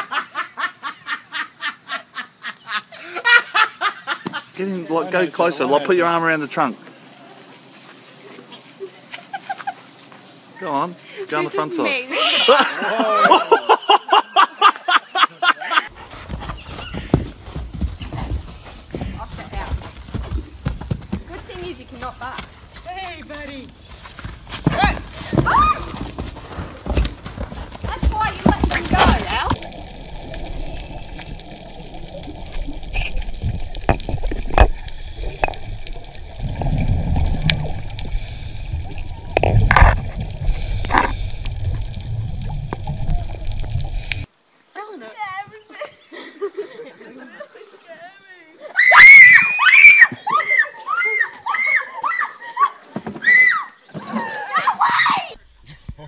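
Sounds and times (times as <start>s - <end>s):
woman laughing: 0.0s - 4.4s, 8.8s - 9.8s, 12.1s - 15.9s, 45.7s - 48.7s
horse hooves on sand: 15.9s - 36.4s
faint hiss: 28.2s - 47.8s
low rumble: 28.3s - 44.3s
underwater breath bubbling: 29.5s - 44.3s.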